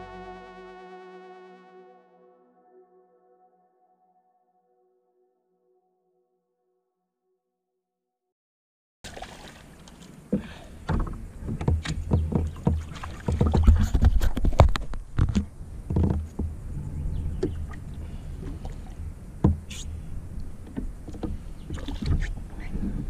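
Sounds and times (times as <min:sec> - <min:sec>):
fish splashing: 0:09.1 - 0:10.2
knocks on kayak hull: 0:10.4 - 0:16.5
low rumble: 0:15.6 - 0:21.0.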